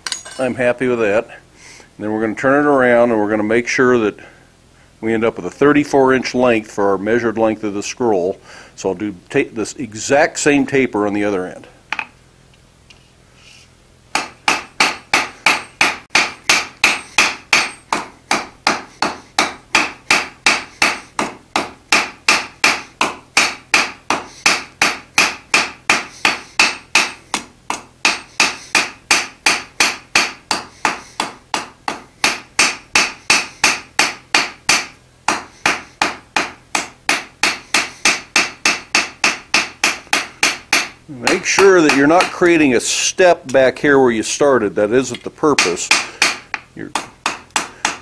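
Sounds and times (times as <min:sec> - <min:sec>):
hammer striking hot iron on anvil: 0:00.0 - 0:00.4, 0:14.1 - 0:42.5, 0:45.0 - 0:48.0.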